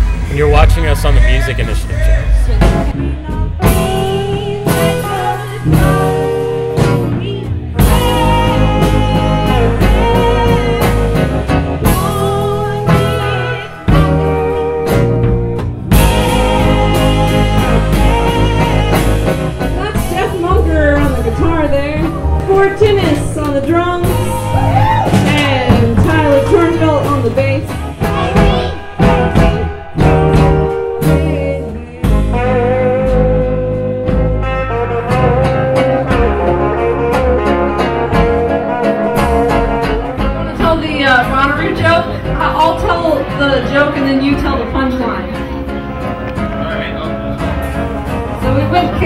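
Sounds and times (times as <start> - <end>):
electric guitars: 0.0 - 49.0
live rock and roll band: 0.0 - 49.0
low accompaniment: 0.0 - 49.0
woman singing with vibrato: 2.3 - 15.1, 15.9 - 34.2.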